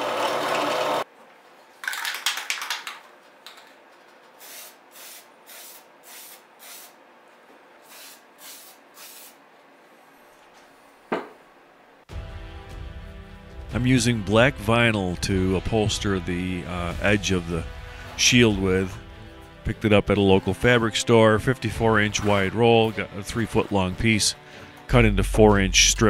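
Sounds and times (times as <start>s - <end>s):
spray paint can hissing: 4.4s - 7.0s, 7.9s - 9.4s.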